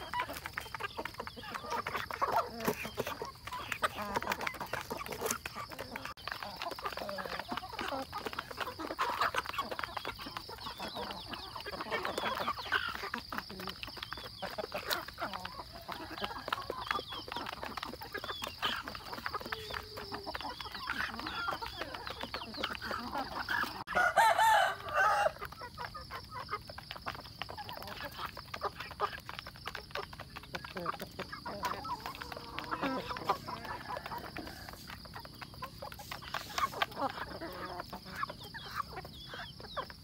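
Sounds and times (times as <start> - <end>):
chickens clucking: 0.0 - 40.0
rooster crowing: 23.9 - 25.4.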